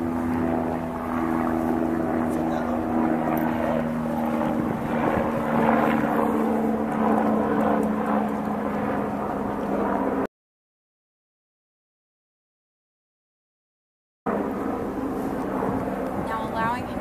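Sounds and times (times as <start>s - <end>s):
engine drone: 0.0s - 10.3s, 14.3s - 17.0s.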